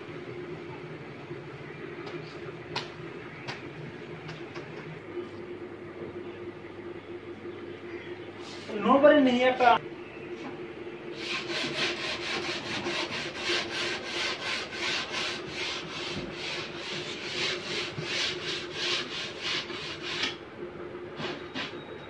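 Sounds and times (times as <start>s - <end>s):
hand tool rasping on wood: 11.2s - 20.4s.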